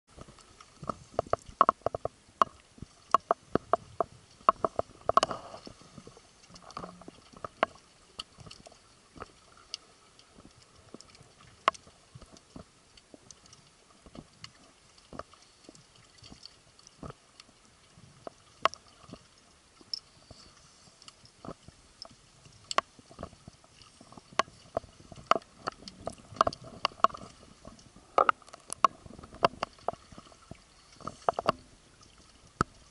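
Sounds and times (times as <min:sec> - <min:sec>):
sharp underwater clicks and crackles: 0:00.1 - 0:32.9
faint hiss: 0:19.8 - 0:22.8.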